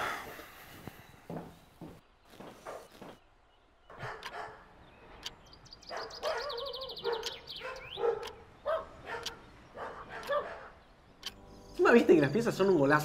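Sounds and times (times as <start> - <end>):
dog barking: 3.9 - 4.7, 5.9 - 10.8.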